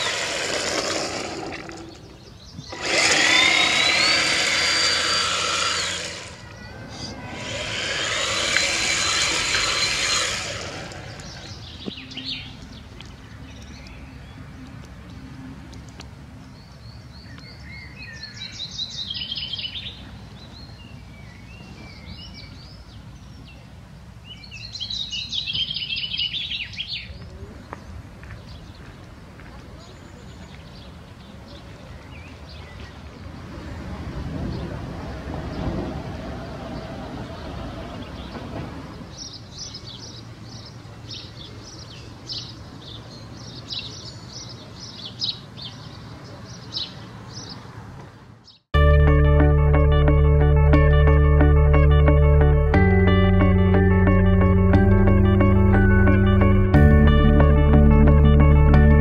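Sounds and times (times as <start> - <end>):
rc car motor whine: 0.0 - 1.8, 2.7 - 6.4, 7.3 - 11.4
songbirds chirping: 0.0 - 35.9, 36.5 - 56.4.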